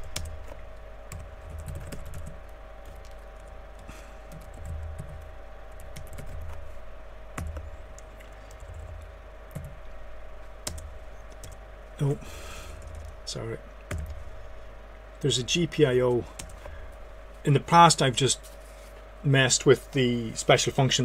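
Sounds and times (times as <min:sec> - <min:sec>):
typing on computer keyboard: 0:00.0 - 0:05.3, 0:05.9 - 0:06.6, 0:07.4 - 0:09.7, 0:13.9 - 0:14.2
low background hum: 0:00.0 - 0:21.0.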